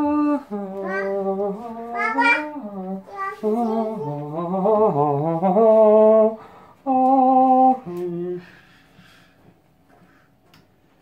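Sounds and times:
person singing wordless tune: 0:00.0 - 0:08.8.

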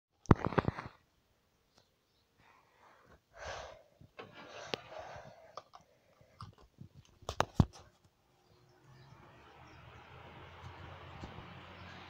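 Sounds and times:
phone handling rustles and clicks: 0:05.5 - 0:08.1.

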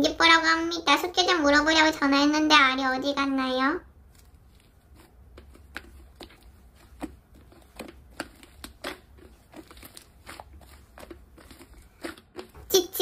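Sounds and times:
slime clicking and popping: 0:04.9 - 0:12.7.

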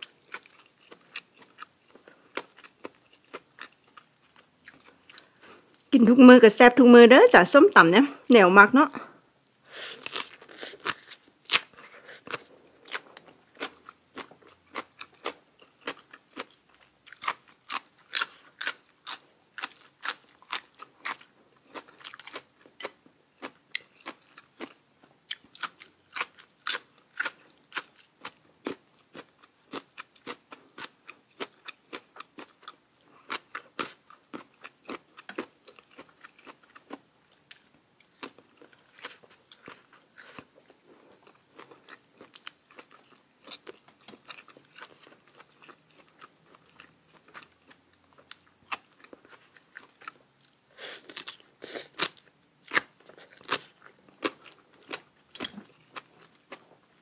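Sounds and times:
person chewing crunchy food: 0:00.0 - 0:05.9, 0:09.9 - 0:57.0.

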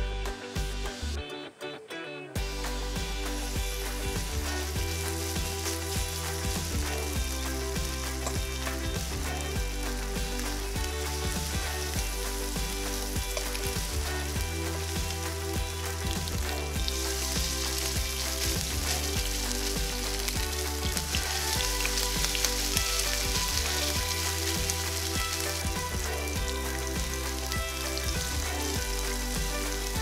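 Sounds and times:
batter sizzling in hot oil: 0:02.4 - 0:30.0.

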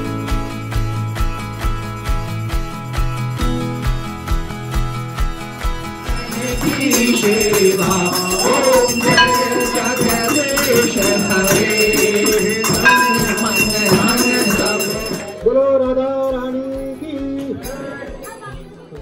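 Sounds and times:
jingling hand percussion: 0:06.0 - 0:15.5
devotional hymn singing: 0:06.1 - 0:15.8.

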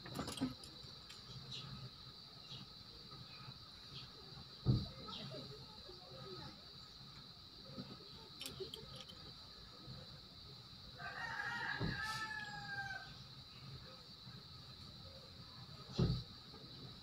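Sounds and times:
rooster crowing: 0:11.0 - 0:13.2.

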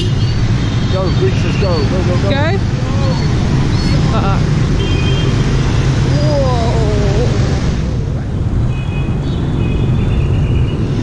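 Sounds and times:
motorbikes and scooters passing: 0:00.0 - 0:11.0
person exclaiming whoa: 0:06.1 - 0:07.5.

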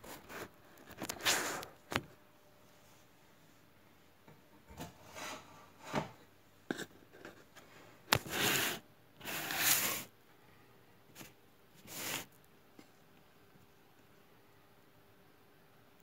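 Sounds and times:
rubbing and scraping from handling: 0:04.8 - 0:06.2, 0:07.1 - 0:10.1, 0:11.2 - 0:12.4.

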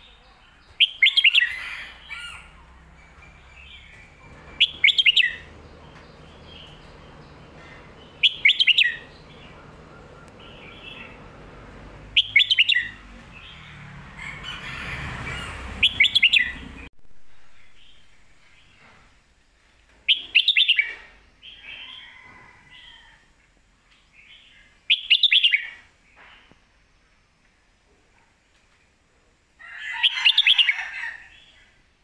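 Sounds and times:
bird whistled song phrases: 0:08.2 - 0:09.0.

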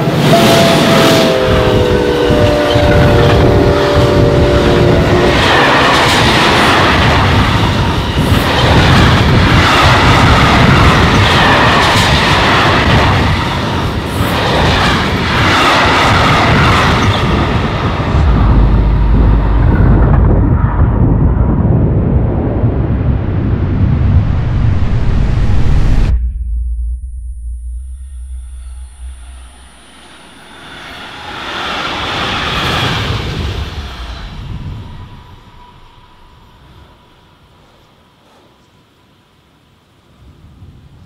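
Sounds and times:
rushing of passing train cars: 0:00.0 - 0:26.0, 0:28.5 - 0:41.0
train horn chord: 0:00.1 - 0:05.6
deep low rumble: 0:16.4 - 0:37.2.

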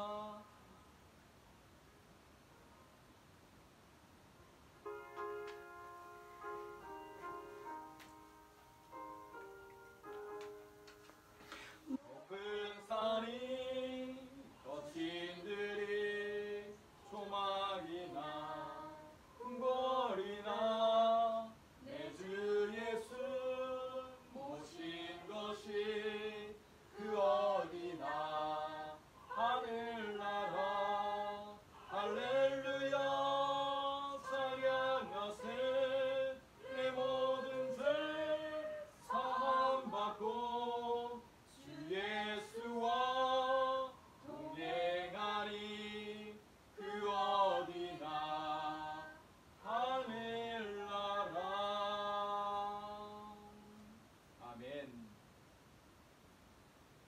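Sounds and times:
voices singing a hymn: 0:00.0 - 0:00.5, 0:11.5 - 0:54.0.

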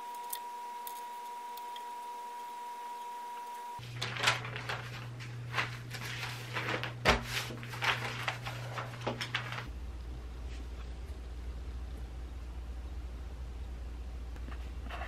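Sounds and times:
steady low hum: 0:00.0 - 0:15.0
newspaper pages rustling: 0:03.8 - 0:09.7.

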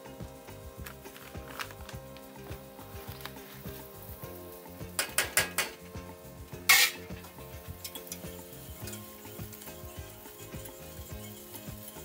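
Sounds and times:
background music: 0:00.0 - 0:12.0
loud sizzling hiss: 0:00.0 - 0:12.0
metal clinks of saucepan: 0:07.8 - 0:09.5.

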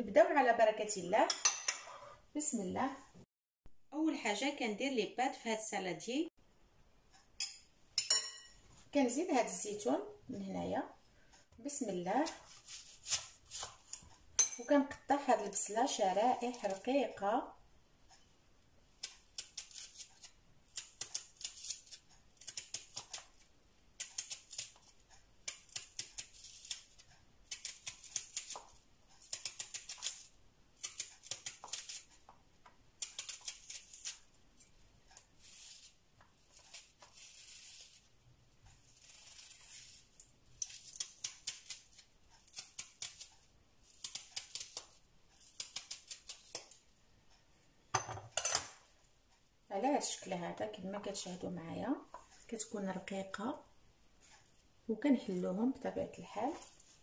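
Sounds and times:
knife slicing onion on cutting board: 0:12.0 - 0:14.5, 0:19.0 - 0:23.4, 0:24.0 - 0:32.3, 0:33.0 - 0:34.3, 0:38.7 - 0:46.8.

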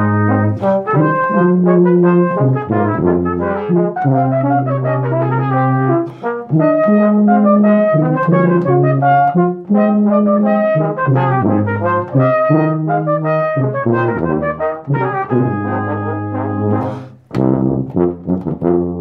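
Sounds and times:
brass ensemble playing: 0:00.0 - 0:19.0.

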